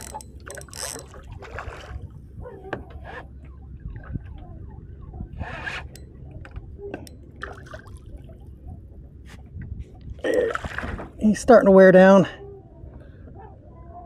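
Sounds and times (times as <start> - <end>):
fishing reel clicks and knocks: 0.0 - 1.2
water lapping around kayak: 0.0 - 11.4
steady low rumble: 0.0 - 11.6.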